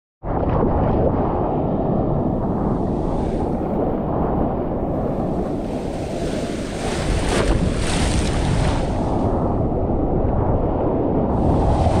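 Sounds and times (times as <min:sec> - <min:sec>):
wind rumble on microphone: 0:00.2 - 0:12.0
ocean surf breaking: 0:02.3 - 0:09.7, 0:11.4 - 0:12.0
water splashing camera: 0:05.2 - 0:09.4.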